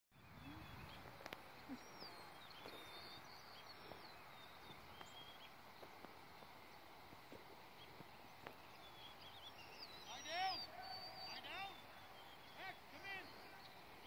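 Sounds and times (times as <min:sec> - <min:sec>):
distant birds chirping: 0:00.2 - 0:14.0
faint clicks: 0:01.1 - 0:01.4.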